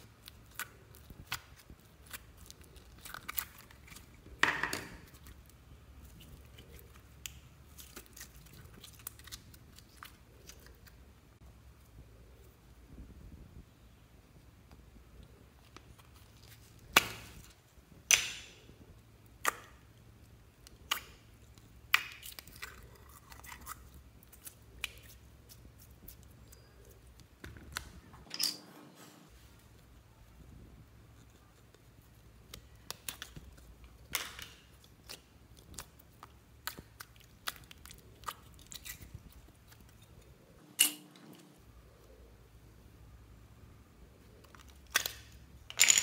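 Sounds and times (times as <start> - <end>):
slime squishing: 0.0 - 12.5, 18.9 - 28.0, 29.6 - 40.6.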